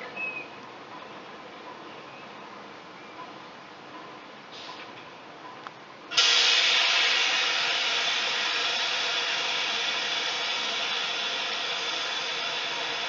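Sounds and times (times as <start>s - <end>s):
train air venting hiss: 4.5s - 5.0s, 6.1s - 13.0s.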